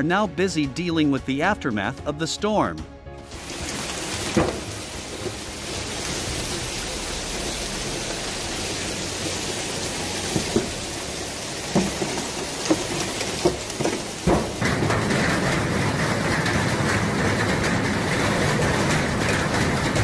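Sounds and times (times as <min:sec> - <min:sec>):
heavy rain pouring: 0:03.2 - 0:20.0
sharp knocks: 0:04.2 - 0:05.4, 0:11.7 - 0:20.0.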